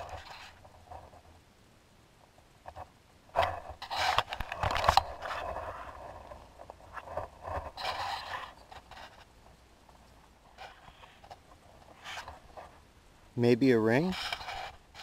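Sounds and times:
gravel scraping and crunching: 0.0 - 1.3, 3.4 - 12.8.

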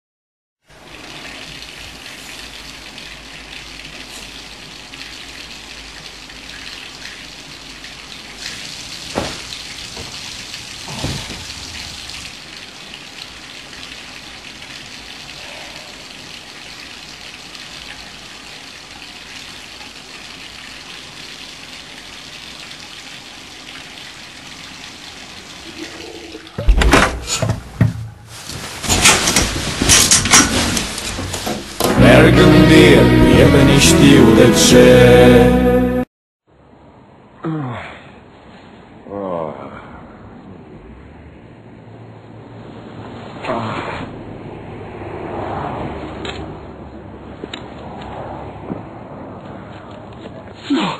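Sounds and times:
running water hiss: 0.7 - 26.4
sharp knocks and clatter: 28.8 - 32.0.

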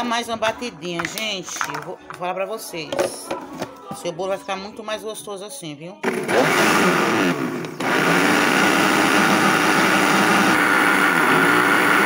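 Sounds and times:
electric blender running: 6.0 - 12.0.

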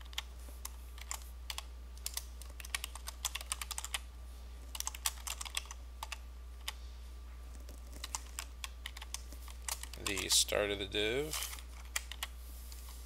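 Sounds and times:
typing on keyboard: 0.0 - 4.0, 4.7 - 6.8, 7.5 - 10.4, 11.8 - 12.3
low steady hum: 0.0 - 13.0.

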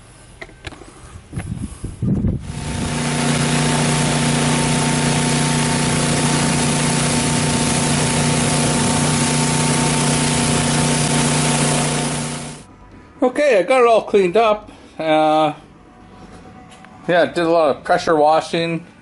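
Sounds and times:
high-pressure water jet hissing: 2.4 - 12.6
pressure washer motor hum: 2.4 - 12.7.

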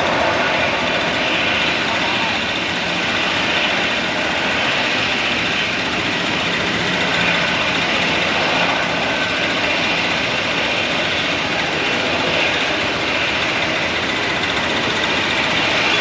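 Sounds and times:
jet engines running: 0.0 - 16.0.

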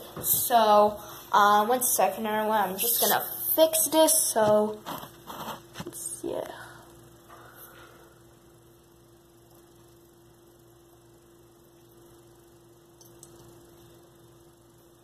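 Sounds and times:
ceiling fan hum: 0.0 - 15.0.

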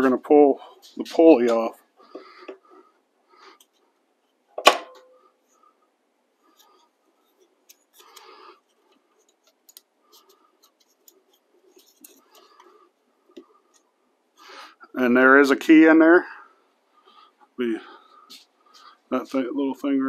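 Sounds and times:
faint clicks and rustling: 6.4 - 14.0.

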